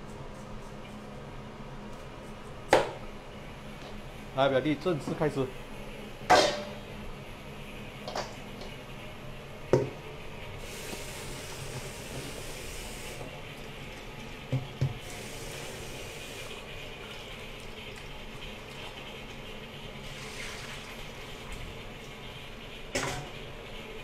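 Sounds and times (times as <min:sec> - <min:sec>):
tap running into steel sink: 0:14.5 - 0:15.0.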